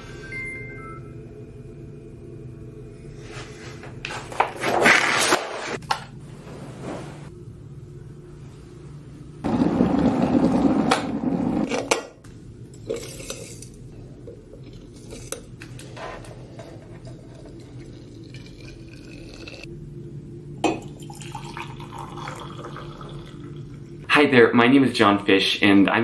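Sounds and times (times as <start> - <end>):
electric kettle boiling: 9.4 - 12.0, 16.2 - 19.7, 20.3 - 24.2
tea pouring into mug: 17.0 - 19.7, 20.8 - 23.8.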